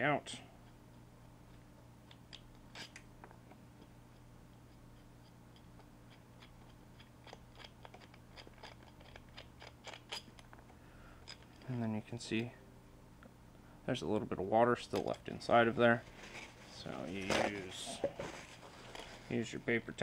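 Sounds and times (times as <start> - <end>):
small screws clicking: 4.1 - 10.6.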